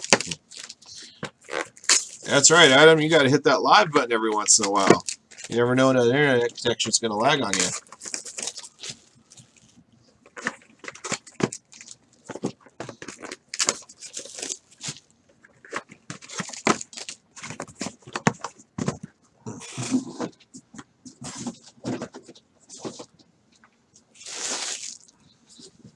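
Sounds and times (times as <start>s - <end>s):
foil packs crinkling and tearing: 0.0s - 2.8s, 7.2s - 17.8s, 24.2s - 25.1s.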